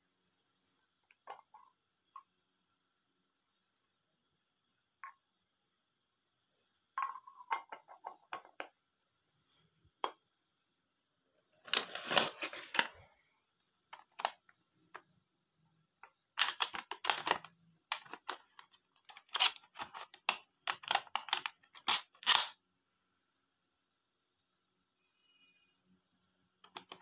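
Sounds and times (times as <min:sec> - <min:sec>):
plastic tray crinkling: 0:11.6 - 0:13.0, 0:16.4 - 0:22.6
plastic cutlery clattering: 0:11.7 - 0:12.9, 0:16.4 - 0:22.6.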